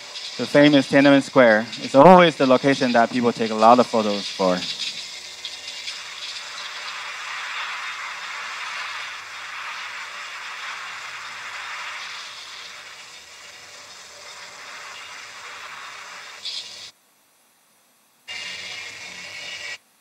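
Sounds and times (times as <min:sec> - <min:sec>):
hissing film soundtrack over speakers: 0:00.0 - 0:17.0, 0:18.3 - 0:19.8.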